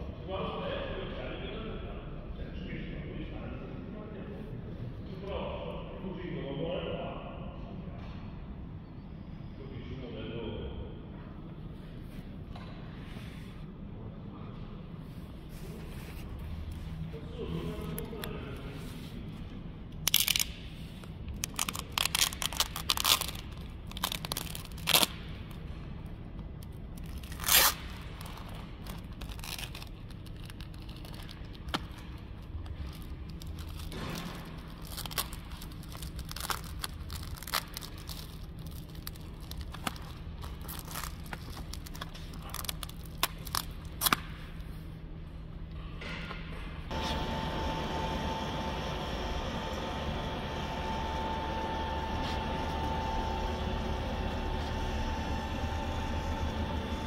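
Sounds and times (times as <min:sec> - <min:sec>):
steady low hum: 0:00.0 - 0:57.0
plastic film peeling off tray: 0:21.4 - 0:25.5, 0:26.6 - 0:44.4.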